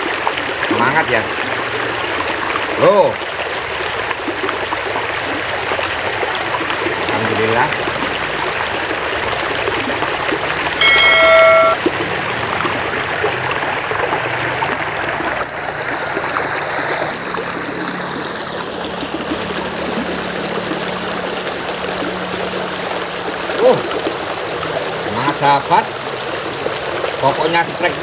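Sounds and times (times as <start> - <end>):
shallow river flowing: 0.0 - 28.0
bell-like chime: 10.8 - 11.8.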